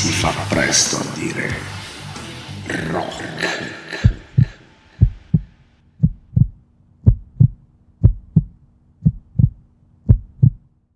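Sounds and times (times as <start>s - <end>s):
music: 0.0s - 5.8s
faint steady hum: 3.9s - 10.9s
heartbeat double thump: 4.0s - 10.7s.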